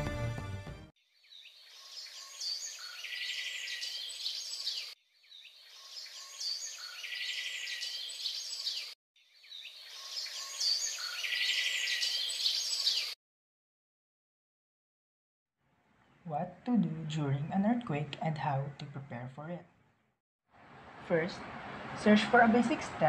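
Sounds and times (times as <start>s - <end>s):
birds chirping: 1.2s - 13.2s.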